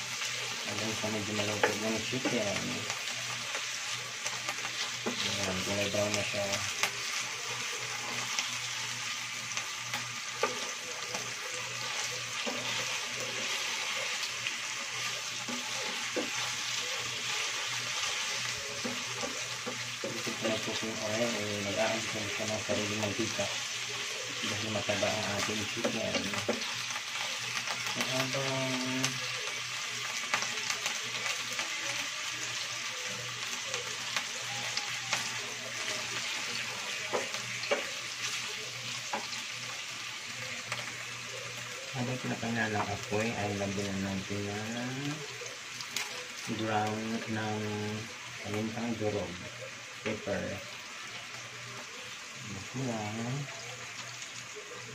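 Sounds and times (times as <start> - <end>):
chicken sizzling in oil: 0.0 - 54.9
spatula scraping a pan: 10.0 - 21.3.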